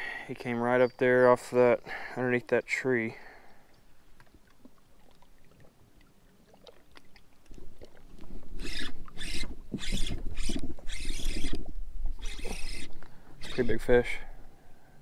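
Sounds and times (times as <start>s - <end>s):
fishing reel handling rumble: 8.2s - 14.2s
short noisy reel bursts: 8.6s - 11.6s, 12.2s - 14.2s.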